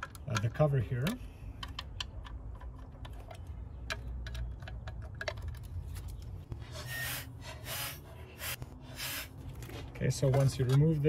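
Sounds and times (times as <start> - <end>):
short rubbing scrapes: 6.6 - 9.4.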